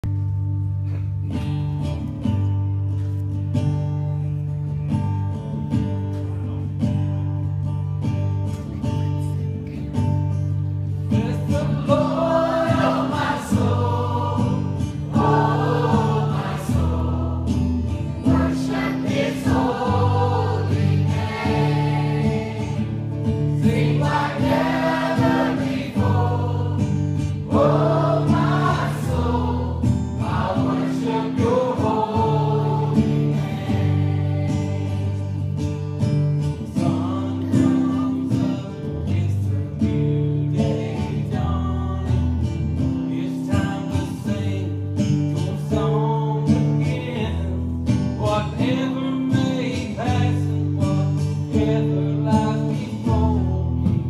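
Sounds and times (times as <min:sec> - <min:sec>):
strummed acoustic guitar: 0:00.0 - 0:54.0
choir singing: 0:11.2 - 0:35.6, 0:36.7 - 0:38.7.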